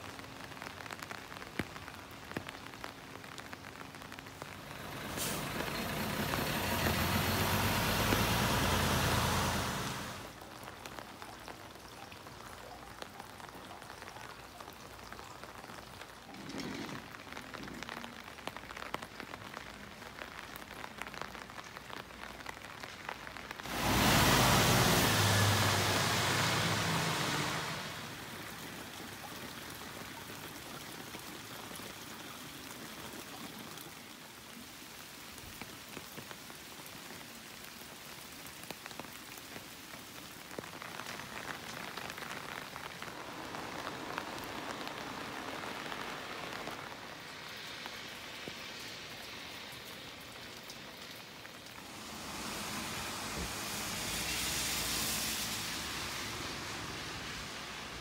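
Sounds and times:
water dripping: 0.0s - 54.2s
rain falling on a wet street: 0.0s - 58.0s.

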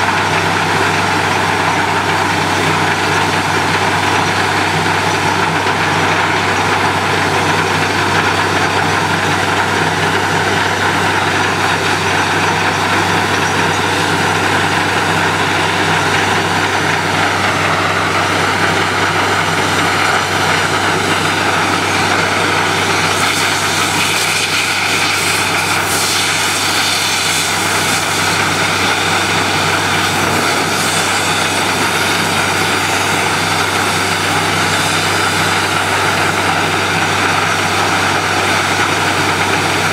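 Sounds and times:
drilling rig engine hum: 0.0s - 39.9s
loud broad hiss: 22.7s - 35.8s.

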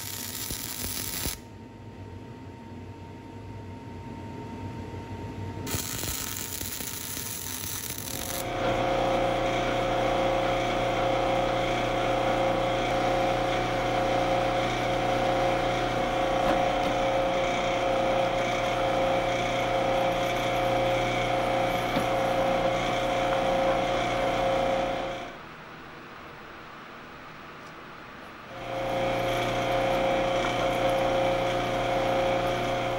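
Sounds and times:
metal lathe whining: 5.7s - 25.4s, 28.5s - 32.9s.

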